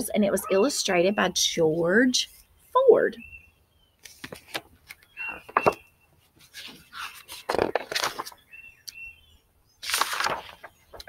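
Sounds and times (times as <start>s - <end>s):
bird chirps: 2.3s - 4.0s, 5.0s - 6.2s, 8.4s - 9.8s
book pages rustling: 4.0s - 8.5s, 9.8s - 11.0s.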